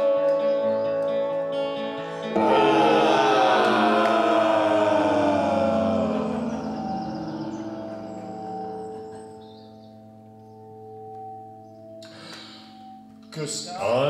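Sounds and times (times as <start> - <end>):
person singing: 2.3 - 9.2
rock band chord: 2.4 - 9.2.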